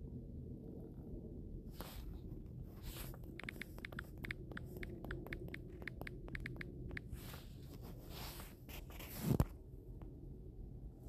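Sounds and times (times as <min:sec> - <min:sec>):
faint low hum: 0:00.0 - 0:11.0
typing taps on phone keyboard: 0:03.4 - 0:07.1.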